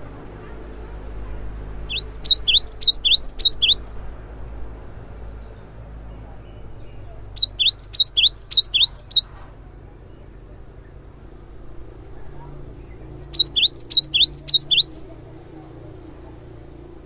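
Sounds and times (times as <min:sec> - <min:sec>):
bird singing two-note whistles: 0:01.9 - 0:03.9, 0:07.4 - 0:09.3, 0:13.2 - 0:15.0.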